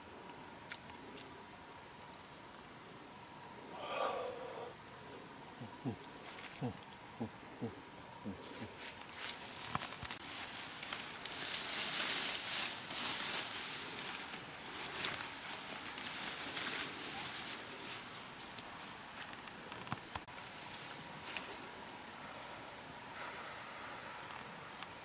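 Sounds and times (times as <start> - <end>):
insects singing: 0.0 - 25.0
footsteps through rustling undergrowth: 8.7 - 19.4, 20.3 - 21.8.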